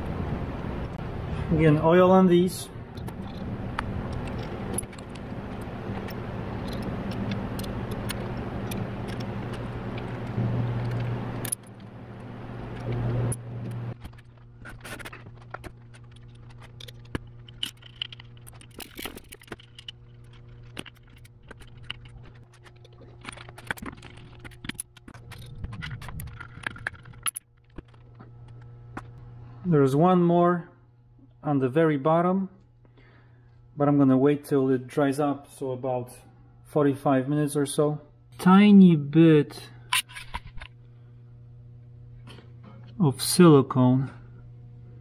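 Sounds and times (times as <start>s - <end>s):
steady hum: 0.0s - 45.0s.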